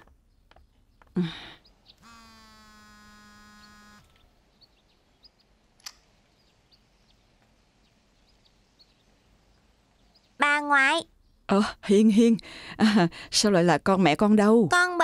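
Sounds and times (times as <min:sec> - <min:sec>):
faint bird chirps: 0:00.2 - 0:12.4
click: 0:05.8 - 0:06.0.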